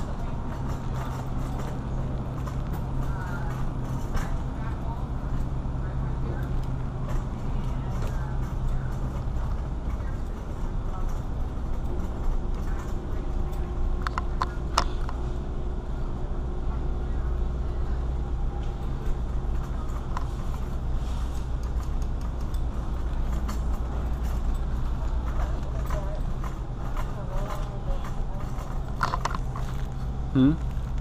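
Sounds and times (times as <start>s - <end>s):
shopping cart rolling: 0.0s - 31.0s.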